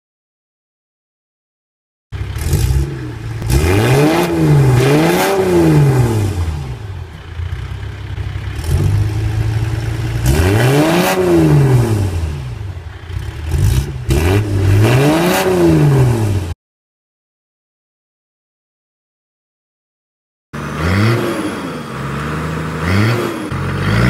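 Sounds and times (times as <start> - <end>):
diesel engine idling and revving: 2.1 - 16.6, 20.6 - 24.0.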